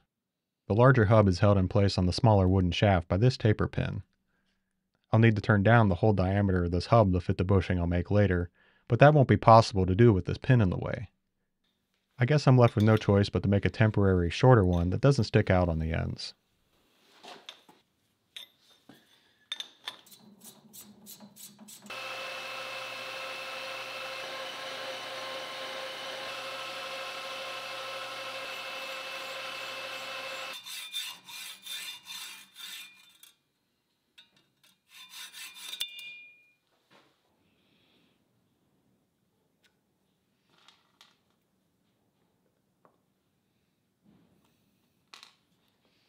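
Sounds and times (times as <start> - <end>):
metal lathe cutting: 21.9 - 31.9.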